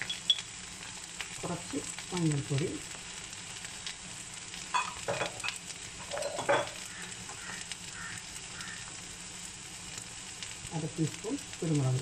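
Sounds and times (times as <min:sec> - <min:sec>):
filling sizzling in oil in a pan: 0:00.0 - 0:12.0
steel spoon scraping a pan: 0:04.7 - 0:07.6.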